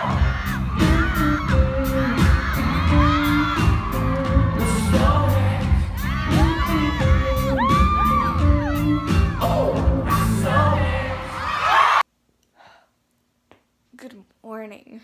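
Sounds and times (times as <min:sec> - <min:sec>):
band playing with drum beat: 0:00.0 - 0:10.8
man singing: 0:00.0 - 0:11.5
fans yelling and singing along: 0:00.0 - 0:12.0.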